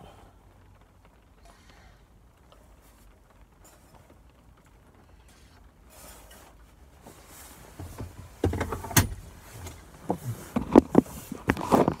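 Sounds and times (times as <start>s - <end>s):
handling knocks and rubbing: 5.3s - 12.0s.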